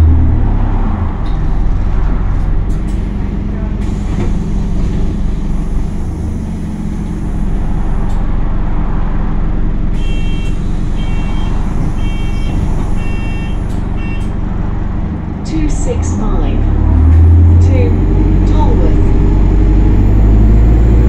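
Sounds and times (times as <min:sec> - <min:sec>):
bus engine idling: 0:00.0 - 0:21.0
door warning beeper: 0:10.0 - 0:14.3.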